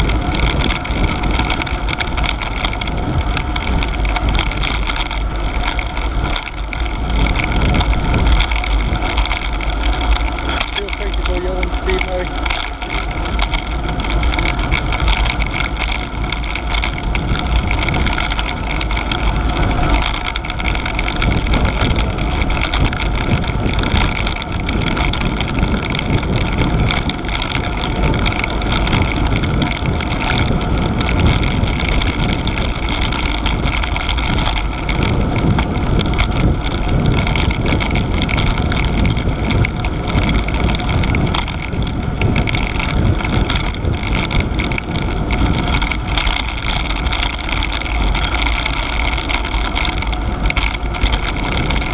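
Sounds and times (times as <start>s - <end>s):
tyres on tarmac: 0.0s - 51.9s
wind rumbling on microphone: 0.0s - 51.9s.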